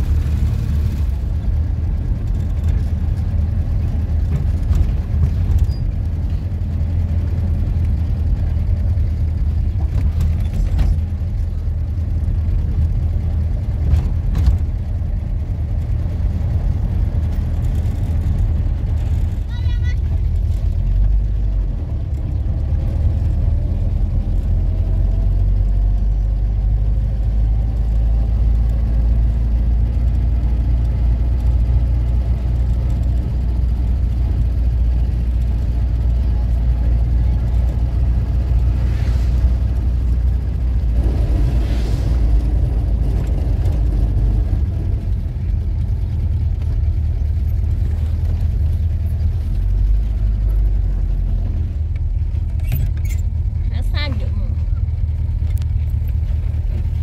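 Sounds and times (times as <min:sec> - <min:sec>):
motor vehicle droning: 0:00.0 - 0:57.0
rushes of noise: 0:37.8 - 0:46.4.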